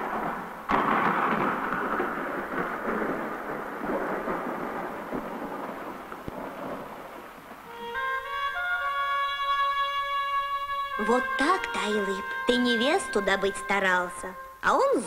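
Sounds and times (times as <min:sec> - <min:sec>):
thunder-like rumbling: 0:00.0 - 0:07.8.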